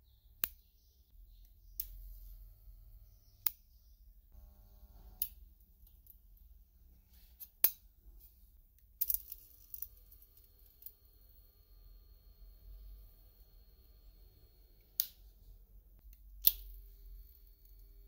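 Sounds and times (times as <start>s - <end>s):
low hum: 1.0s - 5.4s, 9.2s - 18.0s
spot welder snaps: 4.9s - 5.4s.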